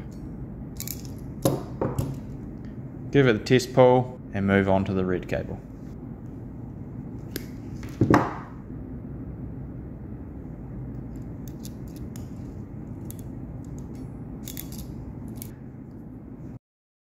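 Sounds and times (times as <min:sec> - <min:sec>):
ratcheting crimping tool clicks: 0:13.0 - 0:15.5.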